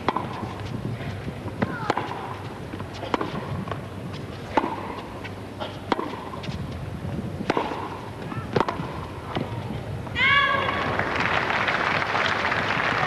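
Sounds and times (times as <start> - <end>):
tennis racket hitting ball: 0.0 - 6.8, 7.4 - 9.8
stadium background noise: 0.0 - 13.0.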